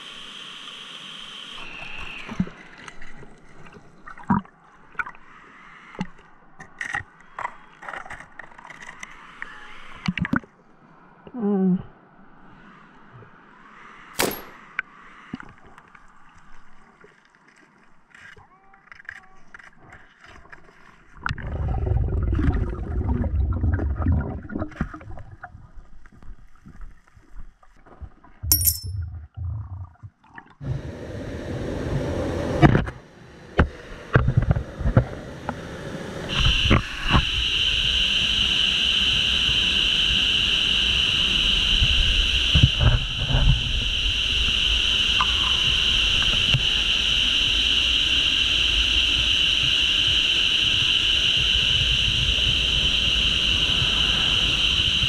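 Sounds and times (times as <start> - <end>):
muffled underwater rumbling: 21.2 - 26.4.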